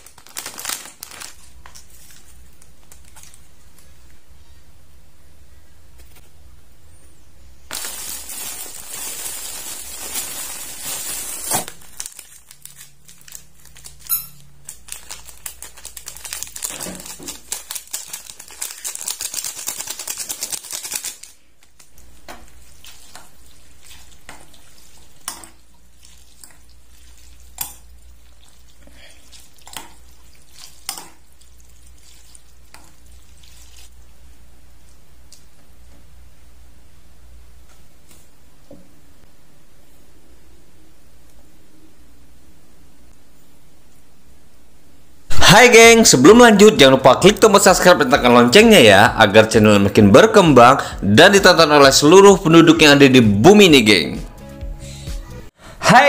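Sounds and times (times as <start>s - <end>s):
plastic sachet crinkling: 0.0s - 3.5s, 7.7s - 24.2s.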